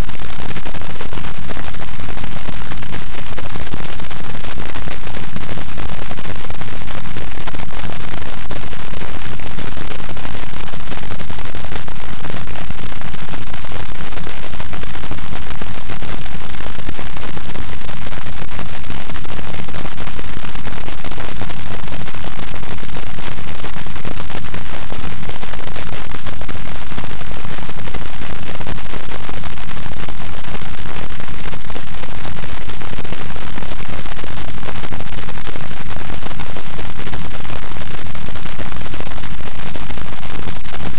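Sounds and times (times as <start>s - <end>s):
loud static noise: 0.0s - 40.9s.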